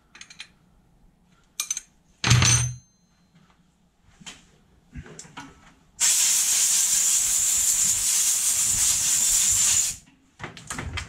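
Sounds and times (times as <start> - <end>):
compressed air blow gun blast: 6.0 - 10.0.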